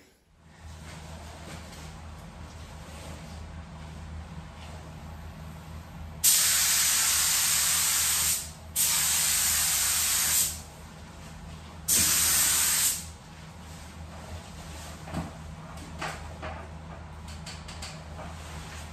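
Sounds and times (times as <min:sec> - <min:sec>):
paint spray gun hissing: 0:06.2 - 0:10.6, 0:11.9 - 0:13.1.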